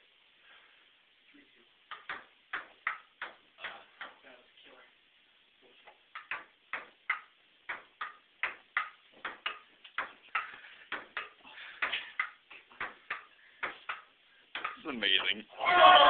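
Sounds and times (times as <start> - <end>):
ping-pong ball clicking: 1.9 - 4.2, 6.1 - 14.8.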